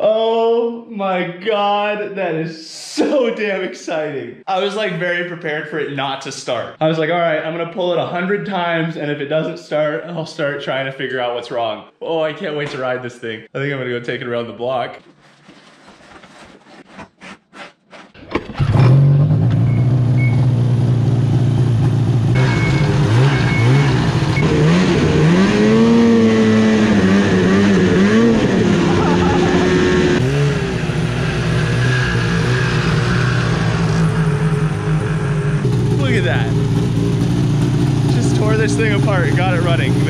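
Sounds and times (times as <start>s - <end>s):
snowmobile engine revving: 18.5s - 40.0s.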